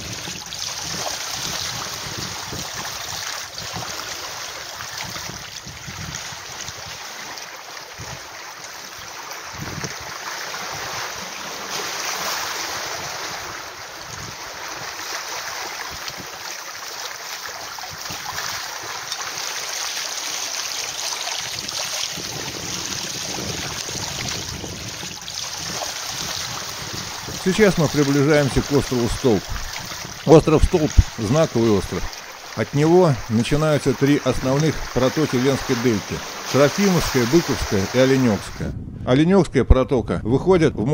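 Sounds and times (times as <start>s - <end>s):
wind buffeting microphone: 0.0s - 7.2s, 7.9s - 11.6s, 12.3s - 15.0s, 21.4s - 40.9s
water rushing: 0.0s - 38.7s
wind rushing: 21.6s - 39.4s.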